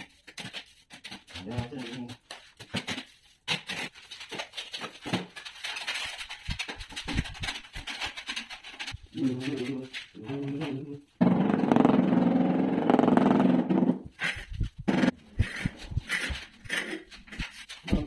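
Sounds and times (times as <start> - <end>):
trowel scraping mortar and bucket: 13.9 - 17.8.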